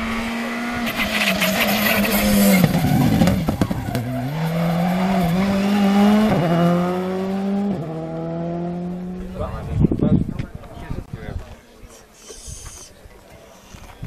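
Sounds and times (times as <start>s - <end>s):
rally car engine revving: 0.0s - 9.7s.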